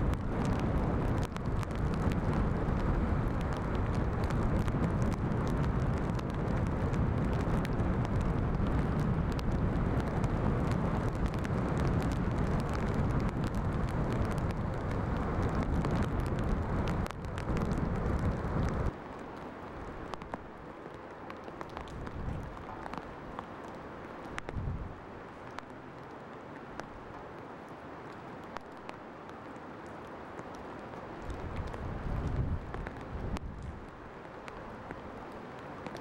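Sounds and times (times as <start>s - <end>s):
wind buffeting microphone: 0.0s - 19.0s, 21.8s - 23.4s, 24.3s - 25.1s, 31.2s - 34.2s.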